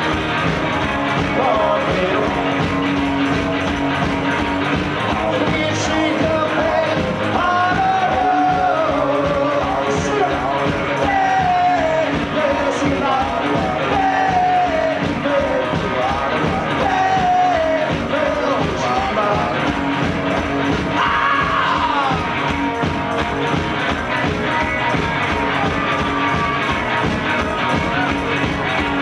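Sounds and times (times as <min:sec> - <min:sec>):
electric guitars: 0:00.0 - 0:29.0
fast drum beat: 0:00.0 - 0:29.0
person singing lead vocal: 0:01.1 - 0:02.8, 0:05.0 - 0:19.8, 0:20.8 - 0:22.5.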